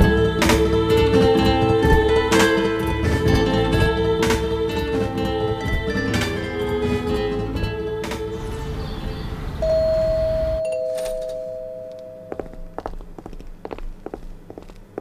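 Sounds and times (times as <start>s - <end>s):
plucked-string music: 0.0s - 9.0s
two-tone doorbell: 9.6s - 12.6s
footsteps on hard floor: 11.9s - 15.0s.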